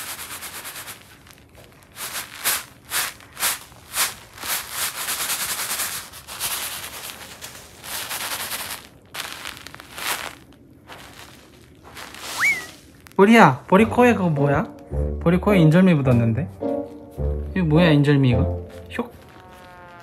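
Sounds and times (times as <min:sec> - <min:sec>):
cat litter being raked: 0:00.0 - 0:13.6, 0:18.8 - 0:20.0.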